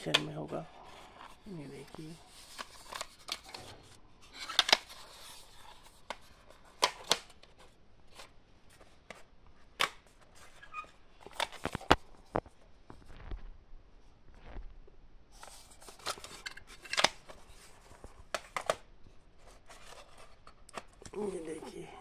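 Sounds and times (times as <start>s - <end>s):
plastic cassette cases clicking: 2.4s - 3.6s, 4.4s - 5.2s, 6.0s - 7.6s, 15.9s - 17.4s, 18.3s - 18.9s.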